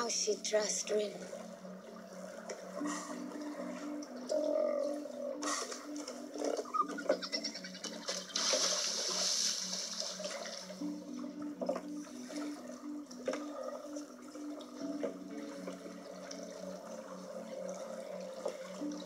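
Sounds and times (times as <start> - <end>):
low repeating musical figure: 0.0 - 19.0
water splashing and sloshing: 0.0 - 19.0
rush of water: 8.0 - 10.8.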